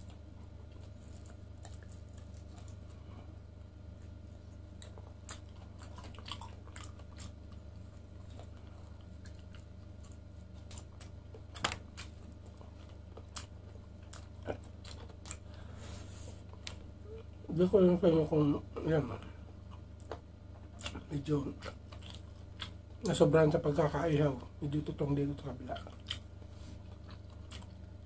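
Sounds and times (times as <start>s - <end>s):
close chewing mouth sounds: 0.0s - 17.5s, 19.2s - 24.4s, 25.5s - 28.0s
steady low hum: 0.0s - 28.0s.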